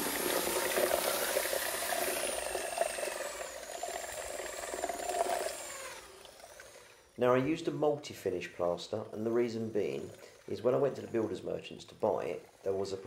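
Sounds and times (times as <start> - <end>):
power drill mixing plaster: 0.0 - 13.0.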